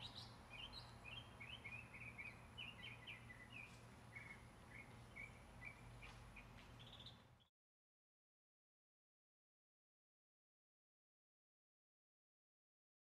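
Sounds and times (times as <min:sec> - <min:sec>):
bird chirping: 0:00.0 - 0:07.5
low steady hum: 0:00.0 - 0:07.5.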